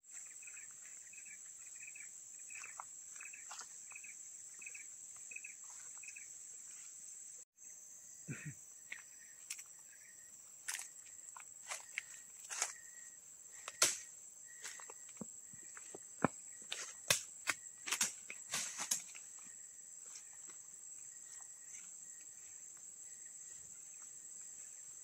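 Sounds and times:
insects droning: 0:00.0 - 0:25.0
footsteps crunching on dry leaves: 0:11.6 - 0:12.8, 0:15.8 - 0:19.4.

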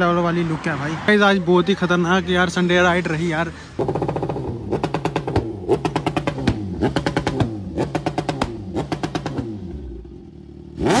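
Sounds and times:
exhaust pops and crackles: 0:03.8 - 0:09.4
motorcycle engine revving: 0:03.8 - 0:11.0.

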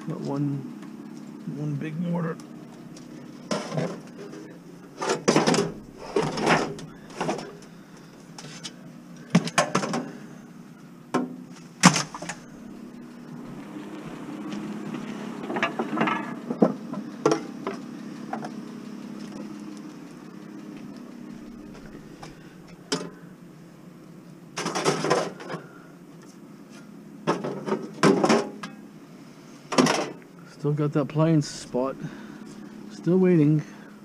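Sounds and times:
steady low hum: 0:00.0 - 0:34.0
scrap metal clattering and knocking: 0:03.4 - 0:07.6, 0:15.4 - 0:17.5.

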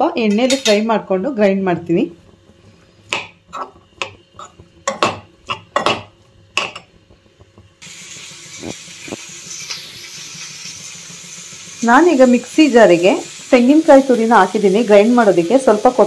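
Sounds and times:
metal spatula scraping a pan: 0:02.7 - 0:06.0
steady hiss: 0:07.8 - 0:16.0.

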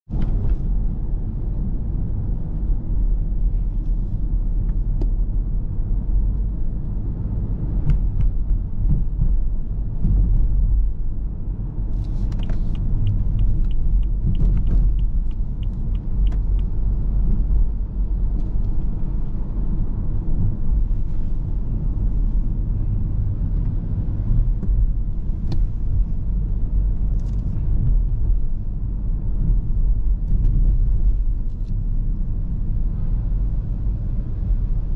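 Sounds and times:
car engine and tyres rumbling: 0:00.0 - 0:34.9
light regular ticks: 0:12.0 - 0:16.8.

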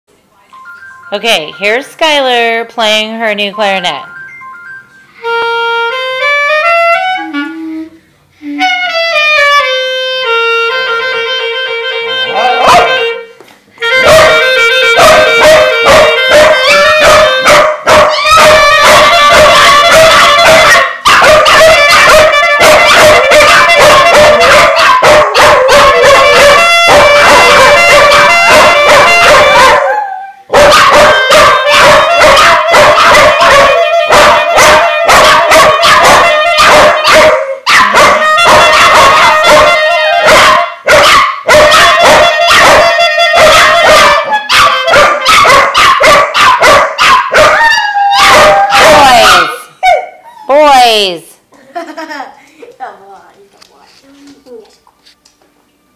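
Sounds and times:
clarinet notes: 0:03.4 - 0:40.7, 0:41.5 - 0:45.7
dogs yipping and barking: 0:12.3 - 0:13.1, 0:14.0 - 0:50.6.

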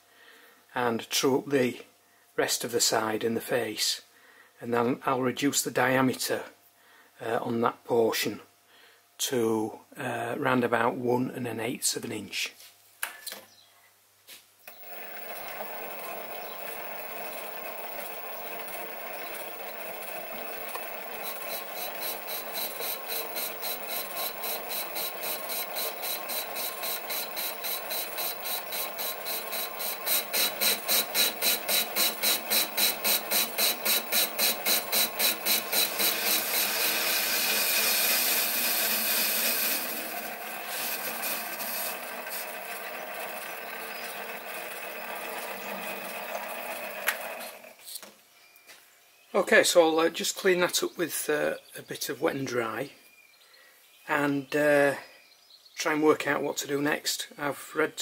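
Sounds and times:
lathe tool scraping metal: 0:14.7 - 0:46.3
lathe motor hum: 0:14.7 - 0:47.7.

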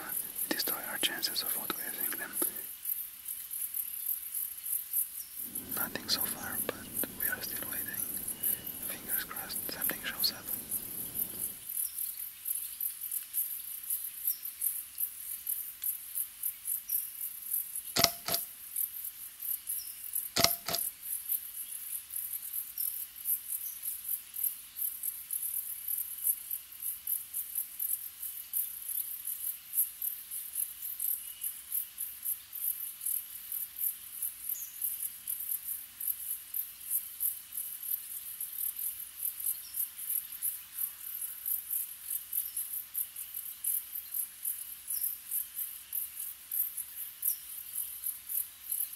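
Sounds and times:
crickets chirping: 0:00.0 - 0:48.9
sharp cracks: 0:18.0 - 0:18.4.

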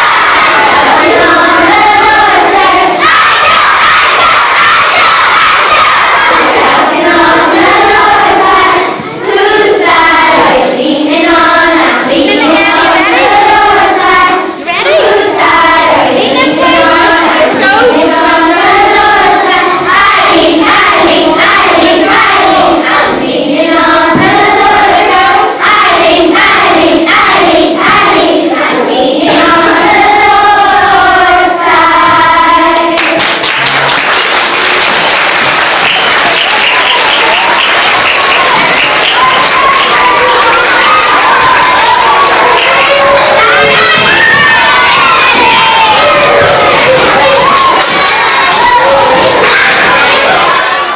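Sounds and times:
children singing together: 0:00.0 - 0:50.9
applause: 0:33.0 - 0:50.9.

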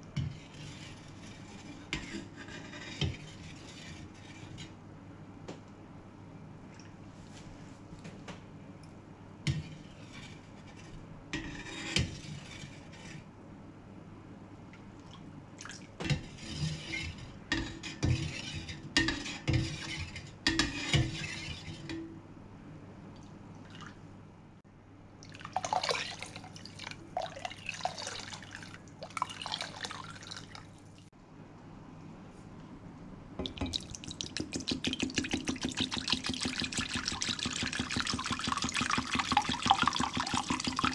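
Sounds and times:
liquid dripping and pouring: 0:25.2 - 0:31.1, 0:33.4 - 0:40.9.

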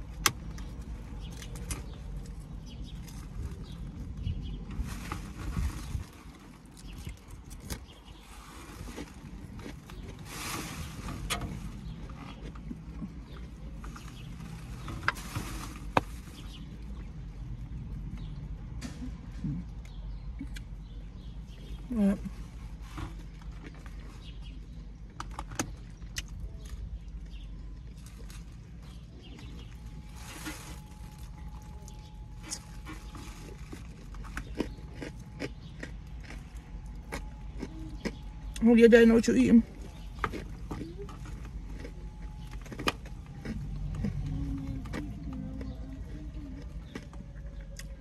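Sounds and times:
chewing and crunching salad: 0:00.0 - 0:48.0
low hum inside car: 0:00.0 - 0:48.0.

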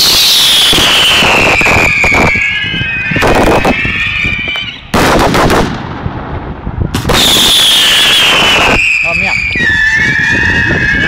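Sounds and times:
high falling whistles: 0:00.0 - 0:04.9, 0:07.1 - 0:11.0
fireworks bangs and crackling: 0:00.0 - 0:11.0
heavy firework blasts: 0:00.0 - 0:11.0.

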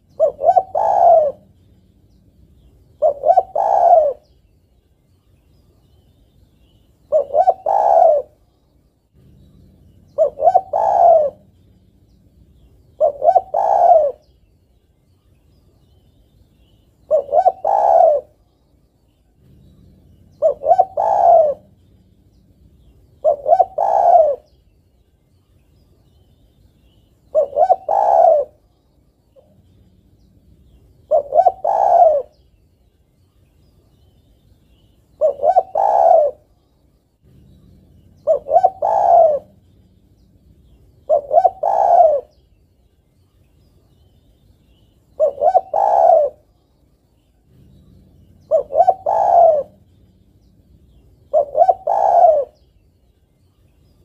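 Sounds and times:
dove cooing: 0:00.0 - 0:04.4, 0:06.8 - 0:08.5, 0:09.2 - 0:14.4, 0:16.6 - 0:18.5, 0:19.3 - 0:24.6, 0:26.9 - 0:28.7, 0:29.3 - 0:32.5, 0:34.8 - 0:36.6, 0:37.2 - 0:42.5, 0:44.7 - 0:46.6, 0:47.4 - 0:52.8.

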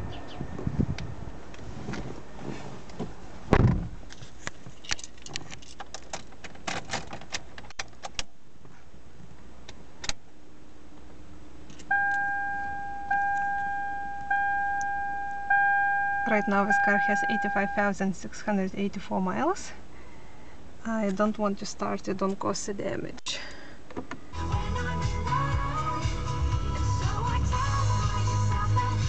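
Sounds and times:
dashboard warning chime dinging: 0:11.9 - 0:18.2.

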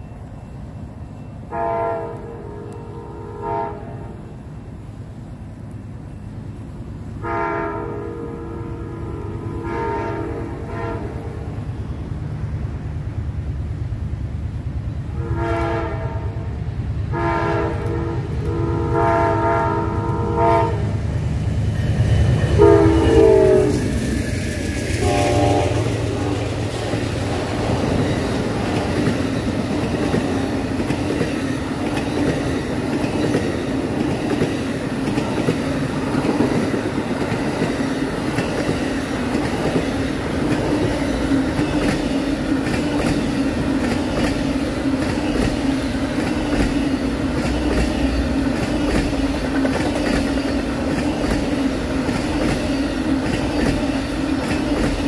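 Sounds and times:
train wheels rumbling on rails: 0:00.0 - 0:55.0
locomotive air horn blasts: 0:01.5 - 0:04.2, 0:07.2 - 0:11.4, 0:15.1 - 0:16.5, 0:17.1 - 0:21.0, 0:22.6 - 0:23.9, 0:25.0 - 0:26.5.

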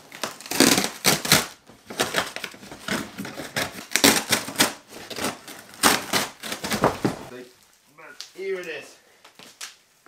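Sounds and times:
cardboard box tearing: 0:00.1 - 0:07.3.

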